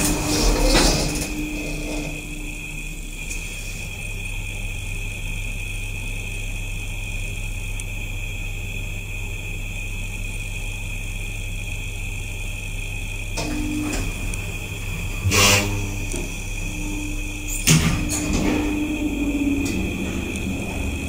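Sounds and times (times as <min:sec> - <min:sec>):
lift equipment clunk and rumble: 0:00.0 - 0:04.0, 0:13.4 - 0:21.0
elevator hum: 0:00.0 - 0:09.7, 0:11.9 - 0:21.0.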